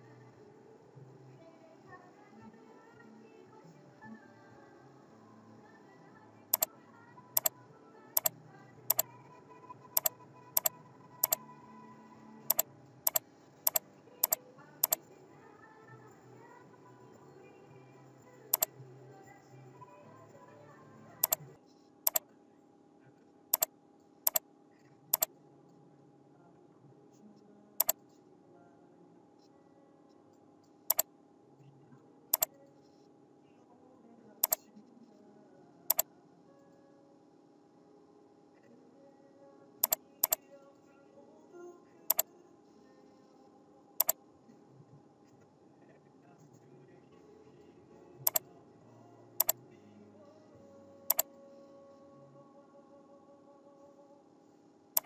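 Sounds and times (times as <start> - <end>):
faint background hum: 0.0 - 55.0
faint background music: 0.0 - 55.0
mouse button clicking: 10.0 - 11.4, 12.5 - 15.0, 39.8 - 40.4.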